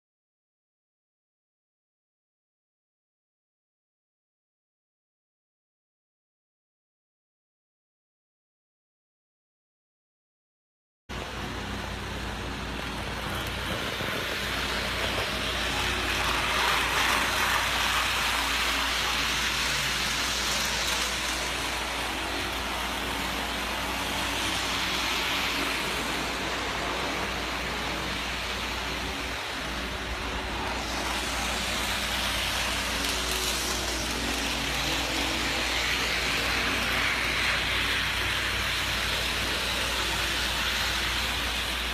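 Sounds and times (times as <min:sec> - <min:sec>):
model train motor whirring: 0:11.3 - 0:41.9.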